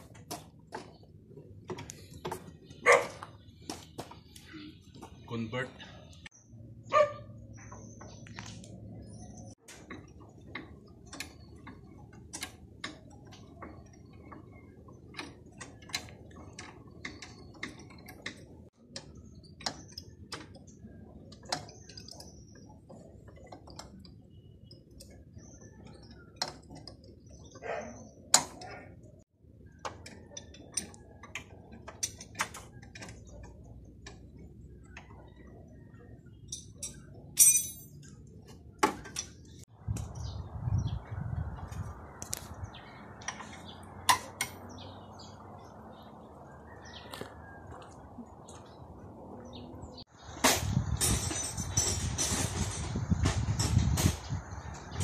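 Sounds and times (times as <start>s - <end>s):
metal hand tools clinking: 36.5s - 38.1s.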